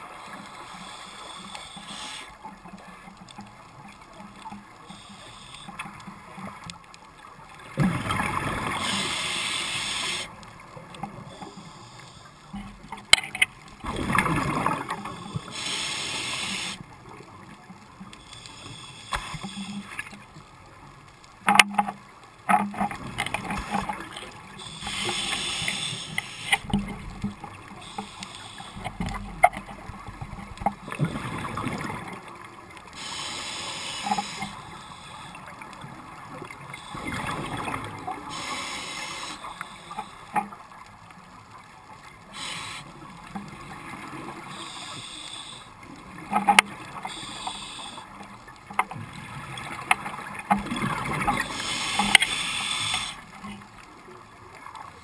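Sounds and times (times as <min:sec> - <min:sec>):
underwater regulator breathing bubbles: 0:14.2 - 0:16.8, 0:23.6 - 0:27.2, 0:33.0 - 0:35.4, 0:51.2 - 0:53.2.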